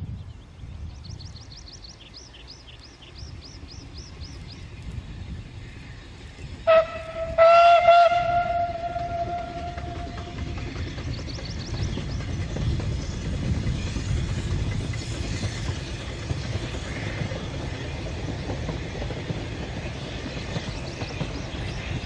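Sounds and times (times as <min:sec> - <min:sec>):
steam locomotive whistle: 0:06.6 - 0:10.4.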